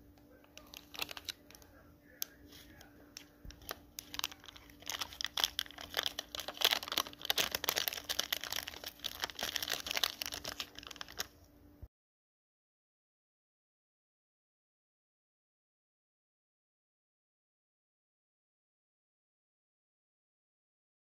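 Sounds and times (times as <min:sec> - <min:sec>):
foil packet crinkling: 0:00.5 - 0:11.4.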